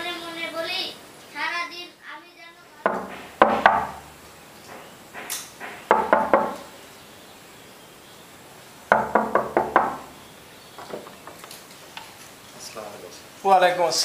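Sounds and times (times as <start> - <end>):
knocking on wooden door: 2.9 - 6.7, 8.9 - 10.2.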